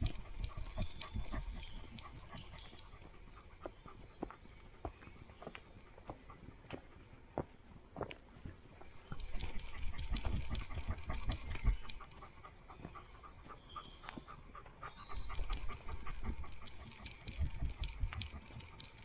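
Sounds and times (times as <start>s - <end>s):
dog panting: 0.0s - 7.7s, 9.1s - 19.0s.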